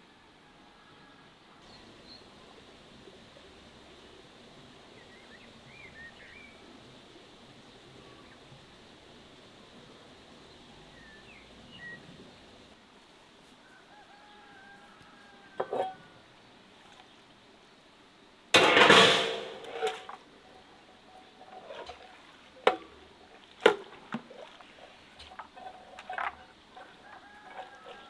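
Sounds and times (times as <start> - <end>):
metal basins clattering: 15.6 - 16.0, 18.6 - 28.0.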